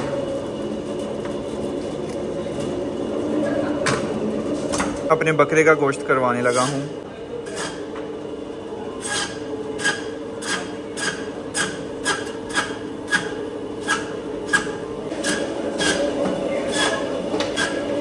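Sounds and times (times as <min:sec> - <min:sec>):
band saw humming: 0:09.0 - 0:18.0
saw rasping through bone: 0:16.7 - 0:17.8.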